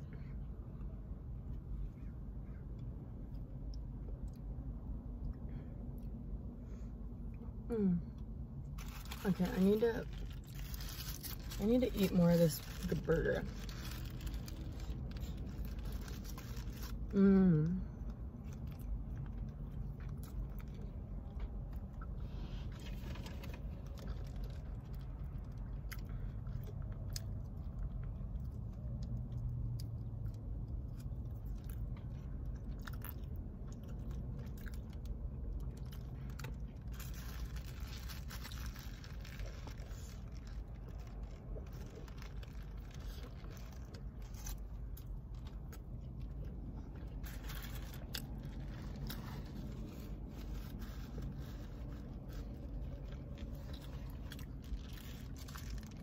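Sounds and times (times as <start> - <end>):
steady low hum: 0.0 - 56.0
chewing and biting: 8.2 - 17.1, 18.0 - 56.0
foil wrapper crinkling: 8.8 - 17.1, 35.8 - 44.7, 47.1 - 56.0.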